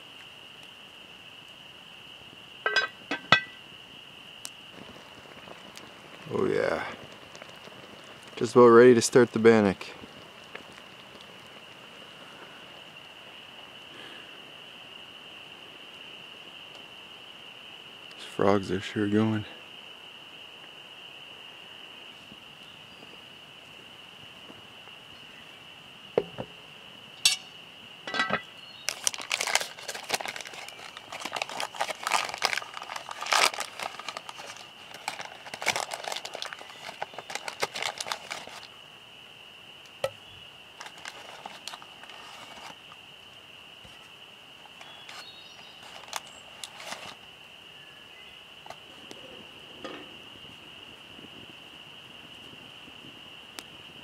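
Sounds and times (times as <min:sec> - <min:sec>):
frogs trilling: 0:00.0 - 0:54.0
crinkling handling noise: 0:28.1 - 0:38.8, 0:40.0 - 0:43.0, 0:43.8 - 0:47.3.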